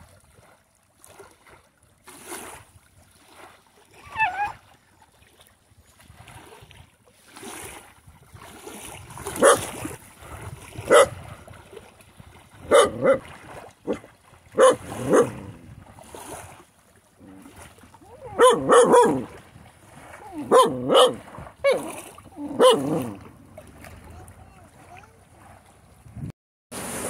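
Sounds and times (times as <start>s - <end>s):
dog barking: 9.4s - 9.7s, 10.9s - 11.2s, 12.7s - 13.2s, 14.6s - 15.4s, 18.3s - 19.3s, 20.4s - 21.9s, 22.5s - 23.0s.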